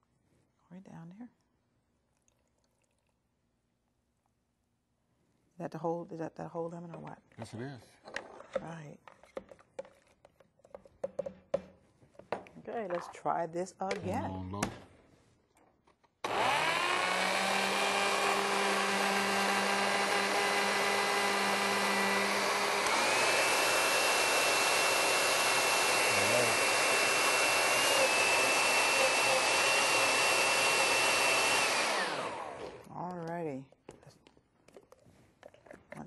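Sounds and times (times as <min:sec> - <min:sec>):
blender motor running: 0:16.2 - 0:32.9.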